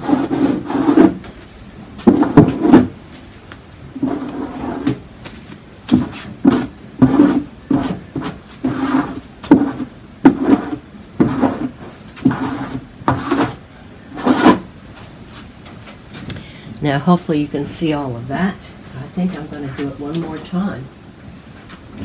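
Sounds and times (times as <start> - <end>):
hand rubbing painted panel: 0.0 - 1.4, 2.0 - 3.0, 3.9 - 5.0, 5.9 - 15.5.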